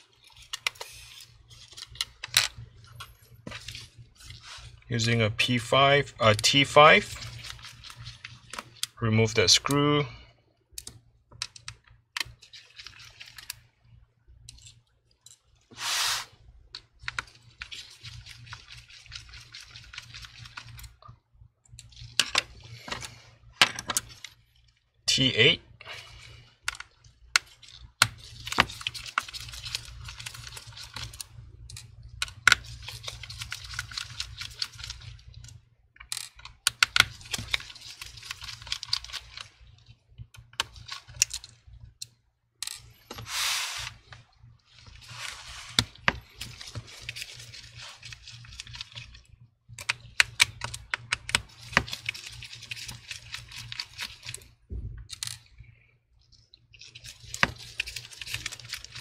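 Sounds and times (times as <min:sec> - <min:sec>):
short hiss: 0:15.7 - 0:16.4, 0:43.3 - 0:43.9.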